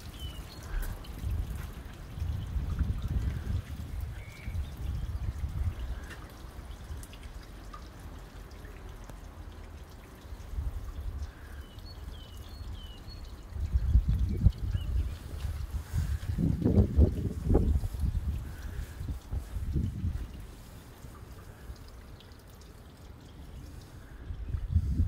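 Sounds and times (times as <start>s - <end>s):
wind buffeting microphone: 0.0s - 7.1s, 12.7s - 20.8s, 23.7s - 25.0s.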